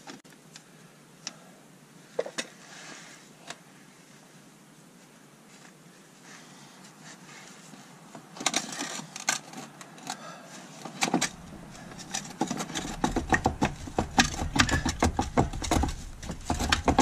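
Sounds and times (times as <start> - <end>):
low rumble: 11.3 - 17.0.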